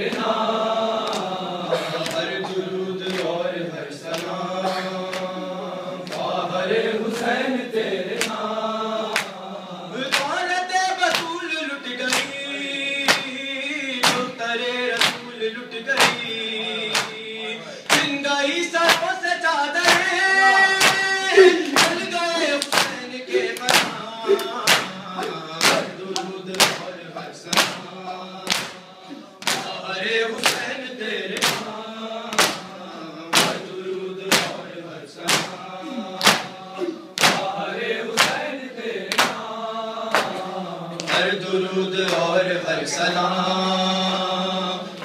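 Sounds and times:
man chanting a lament: 0:00.0 - 0:45.0
chest-beating slaps: 0:23.6 - 0:26.9, 0:34.3 - 0:34.6, 0:35.2 - 0:35.6, 0:36.2 - 0:36.6, 0:37.2 - 0:37.6, 0:38.2 - 0:38.4.

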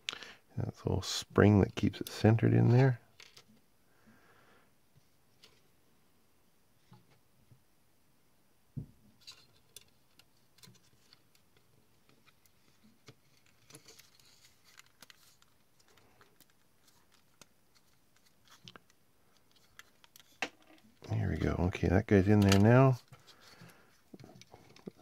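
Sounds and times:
plastic parts clicking and tapping: 0:09.2 - 0:21.0, 0:22.4 - 0:25.0.

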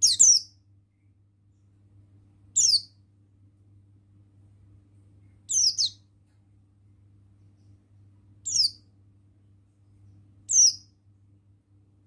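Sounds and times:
bird high chirps: 0:00.0 - 0:00.6, 0:02.6 - 0:03.0, 0:05.4 - 0:06.1, 0:08.4 - 0:08.9, 0:10.4 - 0:11.0.

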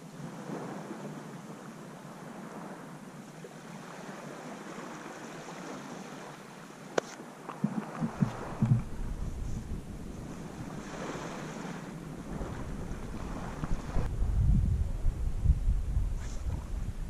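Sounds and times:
small waves washing: 0:00.0 - 0:14.1
wind: 0:00.0 - 0:17.0
low thumps: 0:07.6 - 0:10.6
low rumble: 0:08.0 - 0:10.8.

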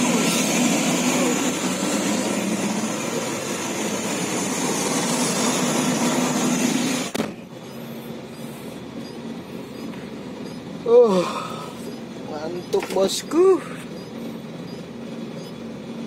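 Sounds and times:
loud steady rushing noise: 0:00.0 - 0:09.2
truck engine droning: 0:00.0 - 0:16.0.

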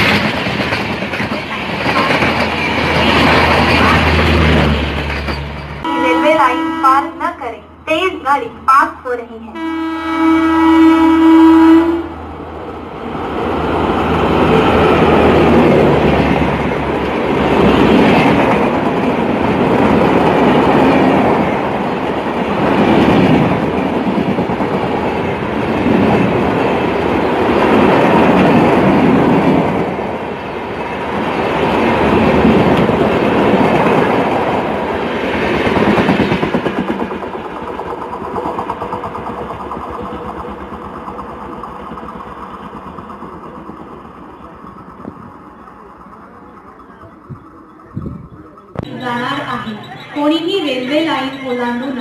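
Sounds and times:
train wheels clattering on rails: 0:00.0 - 0:05.8, 0:13.4 - 0:52.0
locomotive horn: 0:05.8 - 0:07.3, 0:09.5 - 0:12.2.

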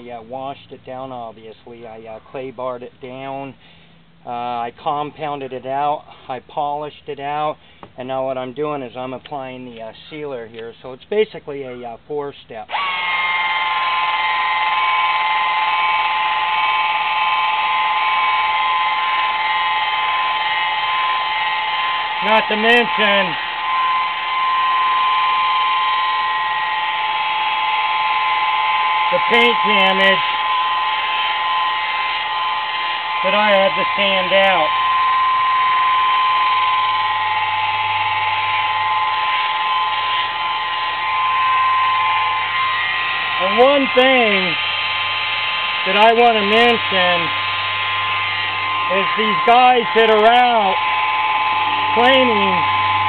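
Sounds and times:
electric polisher whining: 0:12.7 - 0:53.0.

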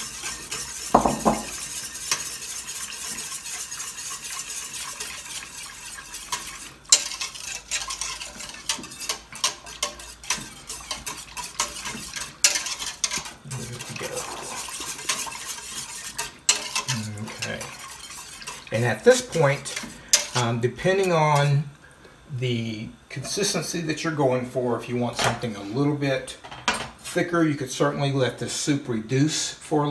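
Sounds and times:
whisk knocking on pot: 0:00.0 - 0:20.5
whisk swishing in soup: 0:00.0 - 0:21.6
whisk wires clicking on pot: 0:00.0 - 0:21.6.

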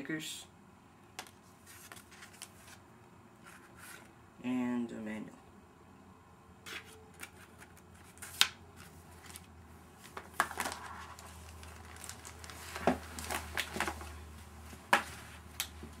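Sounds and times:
packaging crinkling: 0:07.1 - 0:14.2.

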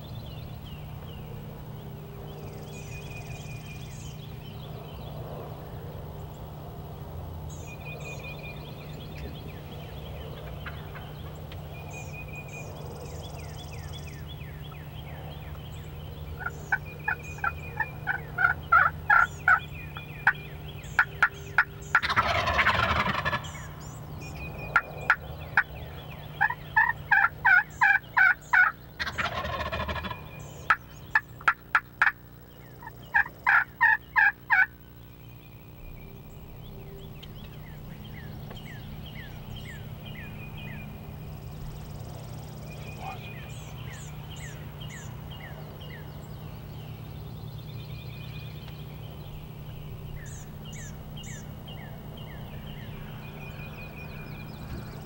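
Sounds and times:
wild turkeys calling: 0:09.2 - 0:12.7, 0:13.4 - 0:47.2, 0:48.3 - 0:55.0.

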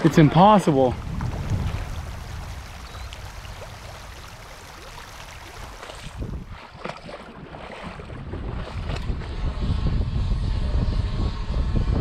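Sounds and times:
small waves lapping: 0:00.0 - 0:09.1
wind rumbling on microphone: 0:00.0 - 0:12.0.

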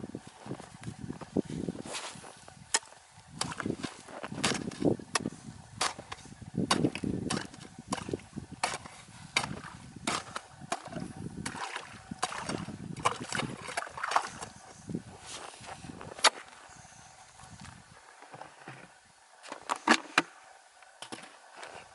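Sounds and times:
ice chisel striking ice: 0:06.7 - 0:10.9
water splashing in hole: 0:09.4 - 0:14.5.

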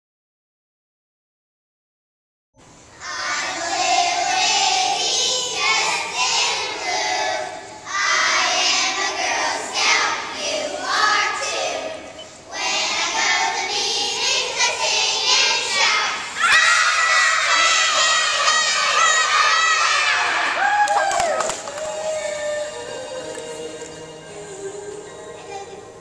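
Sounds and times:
girls singing together: 0:03.0 - 0:20.6.

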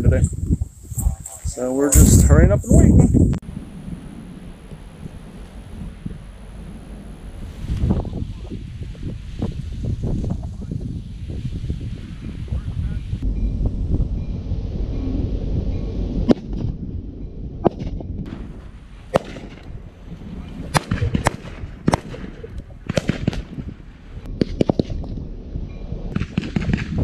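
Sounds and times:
wind rumbling on microphone: 0:00.0 - 0:27.0
rifle shots: 0:19.1 - 0:19.7, 0:20.7 - 0:23.7, 0:26.2 - 0:27.0.

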